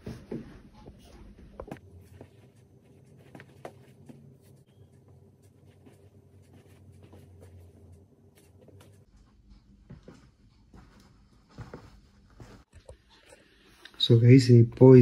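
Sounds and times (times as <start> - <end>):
footsteps on hard floor: 0.0 - 4.6, 5.5 - 12.7
low steady hum: 0.0 - 15.0.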